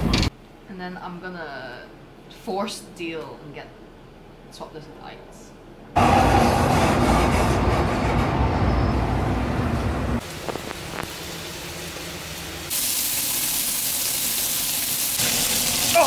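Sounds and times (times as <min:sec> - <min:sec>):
loud steady rumble: 0:05.9 - 0:11.1
scallops sizzling in a pan: 0:10.2 - 0:16.0.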